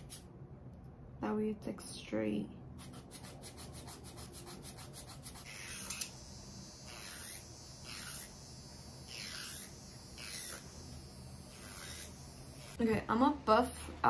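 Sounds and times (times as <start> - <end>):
nail file rasping: 2.8 - 6.2, 6.8 - 12.8.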